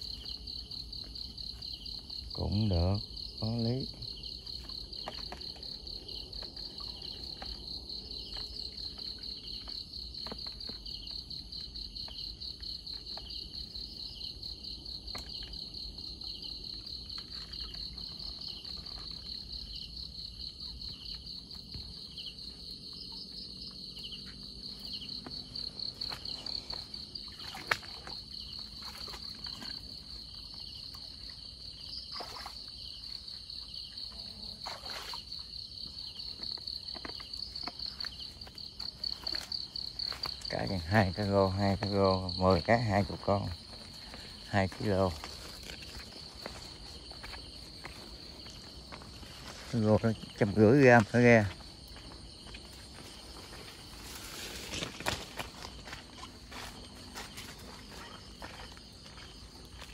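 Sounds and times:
night insects trilling: 0.0s - 59.9s
knocks and splashes in shallow water: 3.2s - 42.0s.

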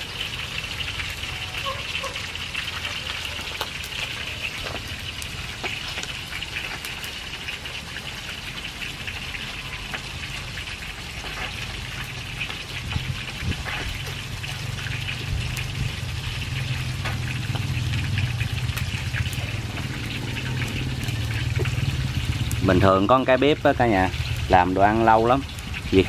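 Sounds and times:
hot oil sizzling and popping: 0.0s - 26.0s
low rumble: 15.0s - 22.9s.

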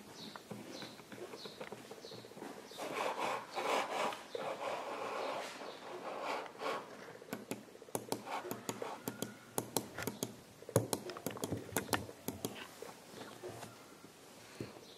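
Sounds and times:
computer mouse clicking: 7.2s - 12.7s.

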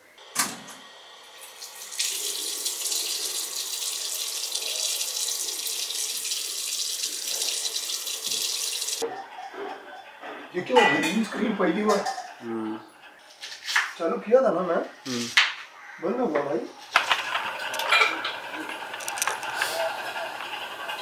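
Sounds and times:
tap running into washbasin: 1.4s - 9.0s.

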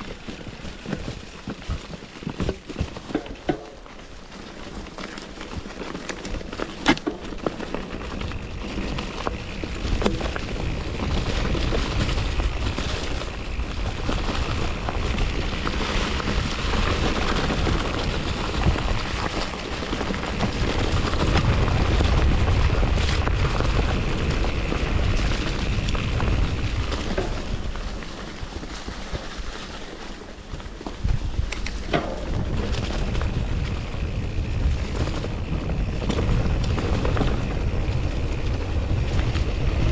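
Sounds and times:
bike clicks and knocks: 0.0s - 39.9s
bike tyres rumbling on dirt: 0.0s - 39.9s
wind buffeting microphone: 8.0s - 28.8s, 30.5s - 39.9s.

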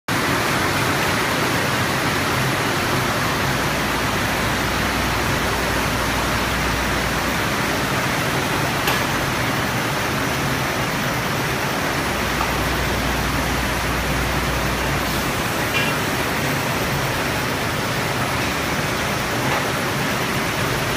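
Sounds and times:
machine running with low hum: 0.2s - 20.9s.

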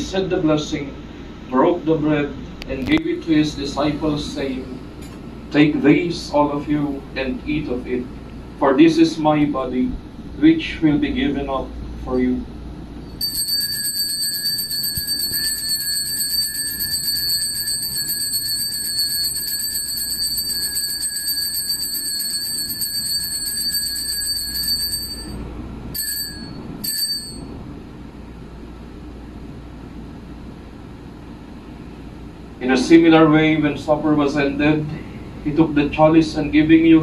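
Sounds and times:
altar bells jingling: 13.2s - 25.4s, 26.0s - 27.4s.

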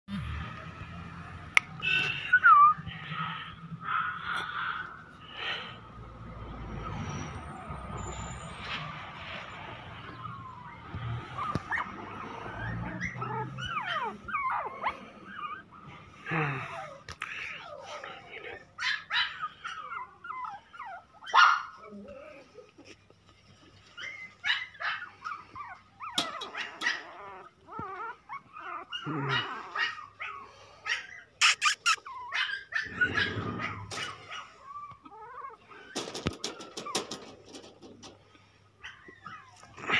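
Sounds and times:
puppies yipping and whimpering: 1.8s - 5.2s, 6.4s - 16.2s, 16.8s - 39.9s.

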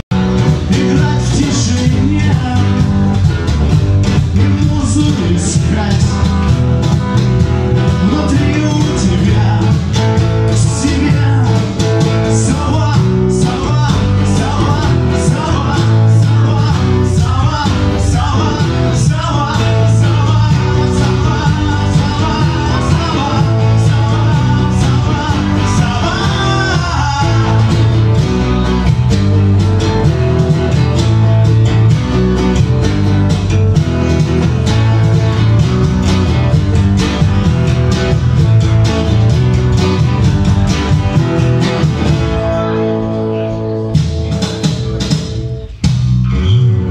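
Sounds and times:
percussion beat: 0.0s - 46.3s
bass guitar: 0.0s - 46.9s
electric guitar: 0.0s - 46.9s
male vocalist singing: 0.4s - 3.3s, 4.1s - 6.6s, 7.8s - 28.2s.

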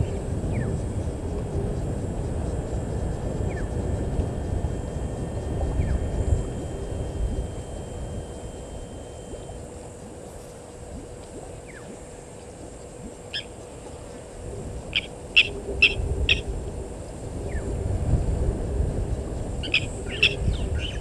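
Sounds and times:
low rumble: 0.0s - 13.1s, 13.7s - 21.0s
bird calling sharp notes: 14.9s - 16.5s.

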